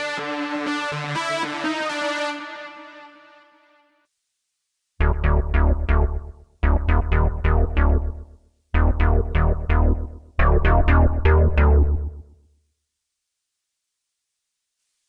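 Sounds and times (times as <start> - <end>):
plucky synth bass notes: 5.0 - 12.3.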